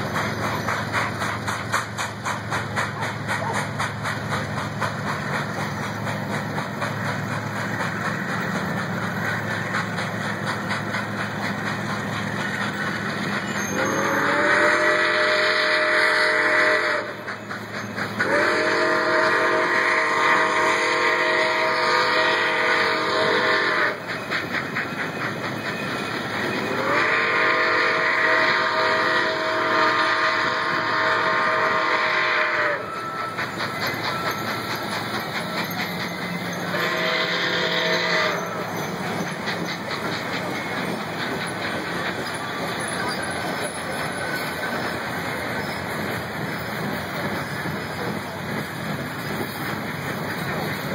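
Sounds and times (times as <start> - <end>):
train rhythmic beat: 0.0 - 50.9
steam whistle blasts: 13.6 - 17.3, 18.2 - 24.0, 26.7 - 33.7, 36.6 - 38.8.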